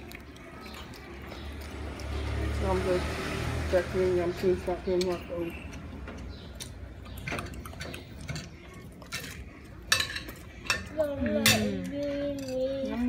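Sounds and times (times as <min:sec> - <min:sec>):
cutlery clinking on plates: 0:07.2 - 0:13.0.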